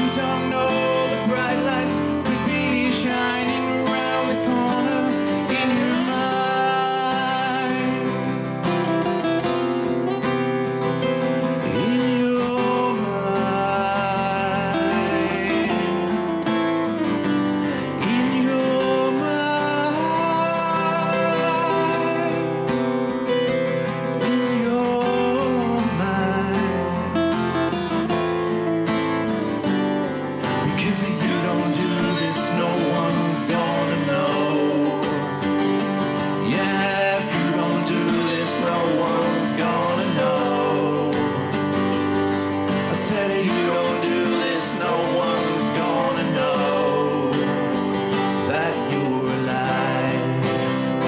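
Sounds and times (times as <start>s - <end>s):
man singing: 0.0s - 9.7s, 11.4s - 28.2s, 30.4s - 51.0s
acoustic guitars strummed and picked: 0.0s - 51.0s.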